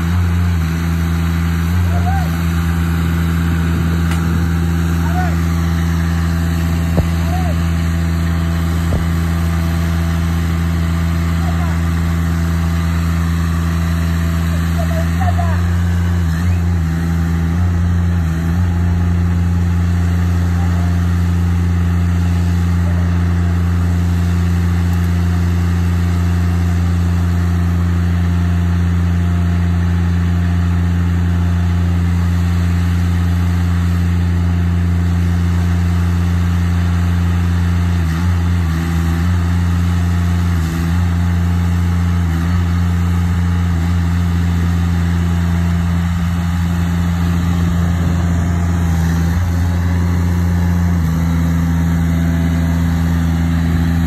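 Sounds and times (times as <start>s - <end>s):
machine engine idling: 0.0s - 38.6s, 39.4s - 54.0s.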